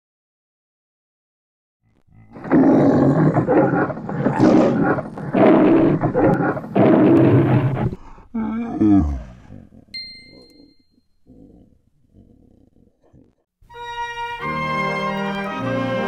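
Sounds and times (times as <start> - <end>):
man imitating lion roars: 1.9 - 9.9.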